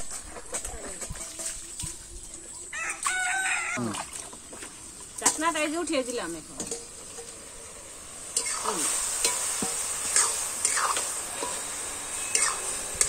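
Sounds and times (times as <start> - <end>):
cabbage sizzling in a wok: 4.4 - 13.0
spatula scraping a wok: 6.5 - 13.0.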